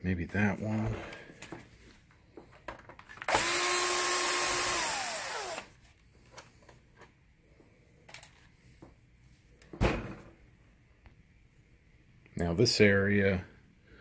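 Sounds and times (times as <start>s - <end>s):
power screwdriver motor whine: 3.3s - 5.7s.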